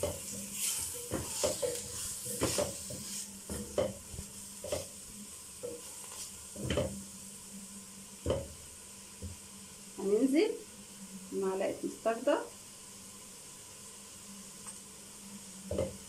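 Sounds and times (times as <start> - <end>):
spatula scraping a metal pot: 0.0 - 4.0
food sizzling in fat: 0.0 - 16.0.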